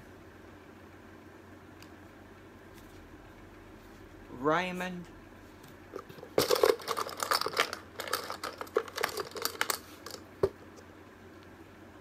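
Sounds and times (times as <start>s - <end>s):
poker chips clattering: 6.0s - 10.3s.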